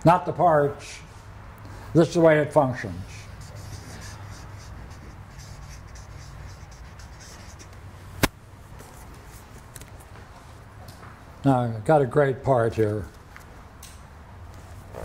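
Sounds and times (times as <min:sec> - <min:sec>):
marker pen scratching on paper: 0:03.2 - 0:07.8.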